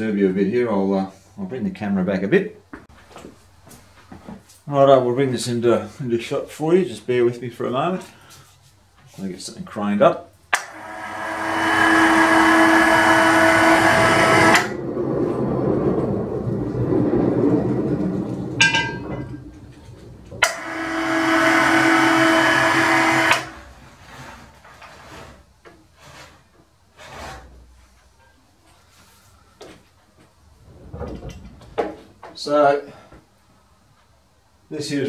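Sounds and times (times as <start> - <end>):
electric hoist motor whine: 10.6 - 23.7
rough clattering: 14.3 - 20.7.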